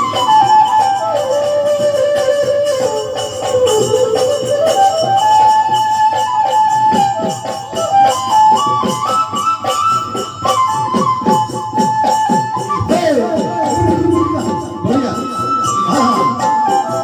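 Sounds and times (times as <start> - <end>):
flute-like wind instrument melody: 0.0 - 17.0
quick drum strokes: 12.9 - 15.8.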